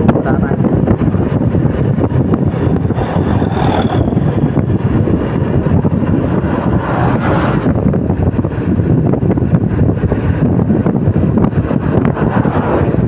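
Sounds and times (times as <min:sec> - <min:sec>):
road noise: 0:00.0 - 0:13.0
wind rushing over microphone: 0:00.0 - 0:13.0
motorcycle engine: 0:01.2 - 0:08.8.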